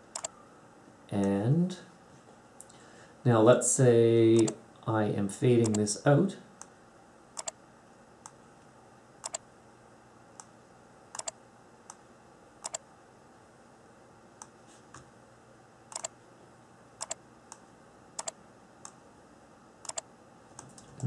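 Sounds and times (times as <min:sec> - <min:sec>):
faint steady hiss: 0:00.0 - 0:21.0
computer mouse button clicking: 0:00.1 - 0:00.3, 0:11.2 - 0:11.4, 0:15.9 - 0:16.1, 0:17.0 - 0:17.2, 0:18.2 - 0:19.0.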